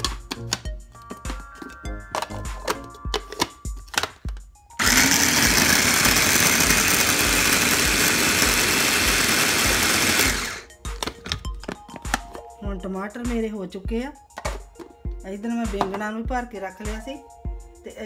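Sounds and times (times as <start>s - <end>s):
background music with steady beat: 0.0s - 18.0s
electric food chopper motor: 4.8s - 10.7s.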